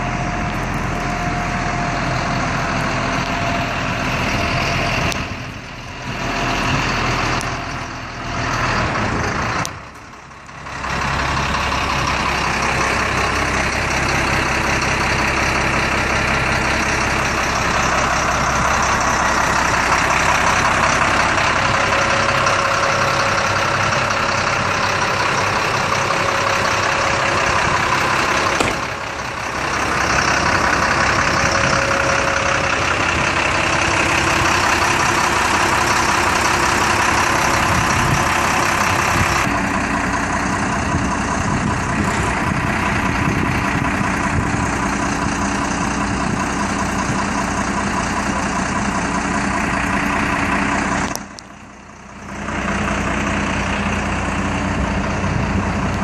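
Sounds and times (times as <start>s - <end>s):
truck engine running: 0.0s - 56.0s
hydraulic bed lowering: 25.2s - 39.5s.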